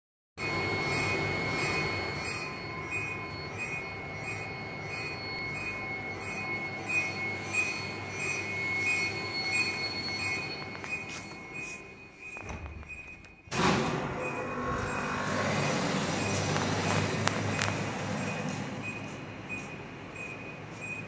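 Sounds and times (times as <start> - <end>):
high-pitched electronic whine: 0.4 - 12.8, 13.5 - 21.0
pulsed high chirps: 0.4 - 13.1.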